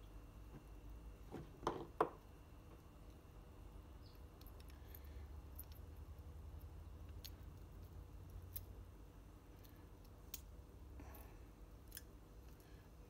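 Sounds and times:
low steady hum: 0.0s - 13.0s
small parts clicking: 4.0s - 10.6s, 11.8s - 12.8s.

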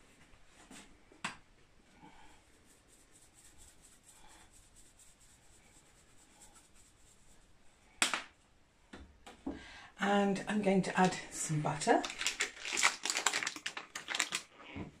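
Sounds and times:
pepper mill grinding: 12.0s - 14.5s.

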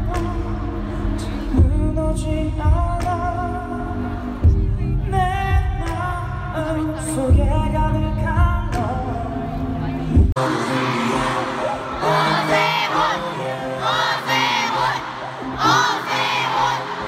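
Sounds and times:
person singing over backing track: 0.0s - 17.0s.

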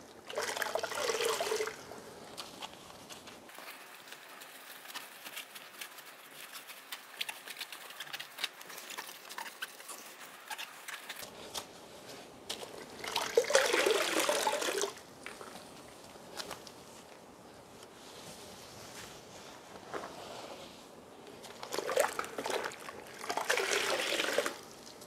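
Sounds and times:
water splashing into bucket: 0.2s - 1.8s, 13.0s - 15.0s, 21.6s - 24.7s.

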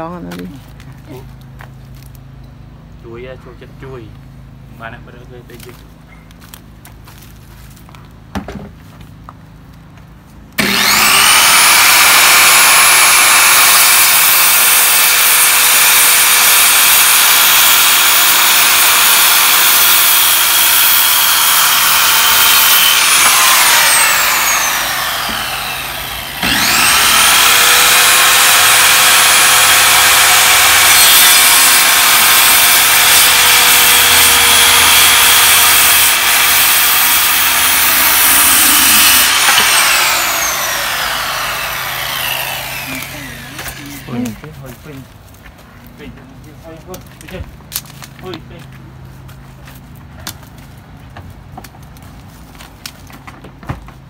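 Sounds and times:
circular saw cutting wood: 10.6s - 45.0s.

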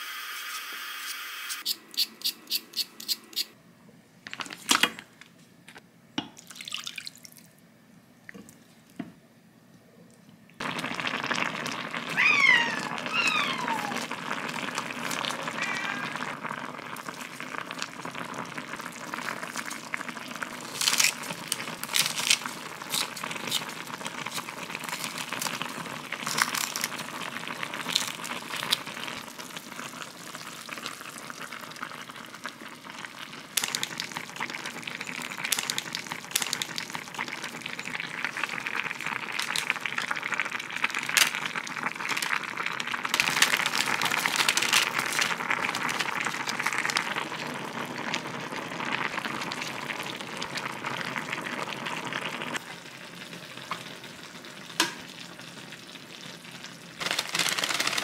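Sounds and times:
peeler scraping potato: 0.5s - 3.5s
pot simmering with hiss: 8.3s - 58.0s.

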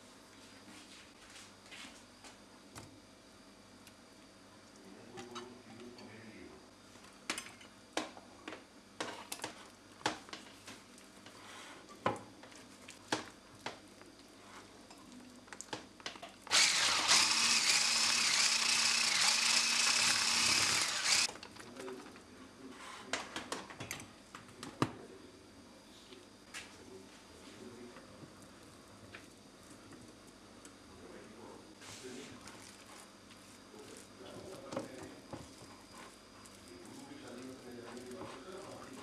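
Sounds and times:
electric hand mixer running: 16.5s - 21.3s.

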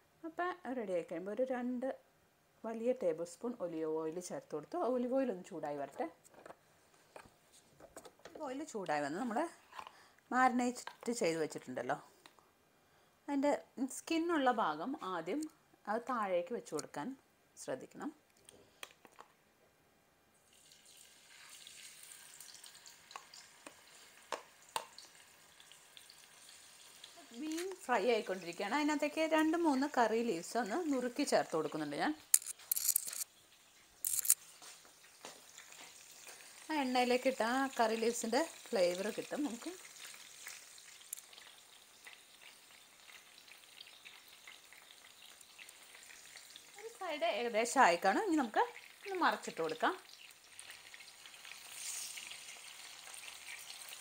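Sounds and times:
fish sizzling in frying pan: 20.4s - 30.0s, 33.2s - 54.0s.

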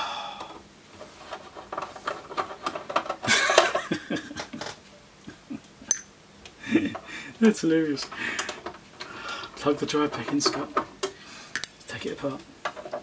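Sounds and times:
man chuckling quietly: 6.6s - 7.3s.

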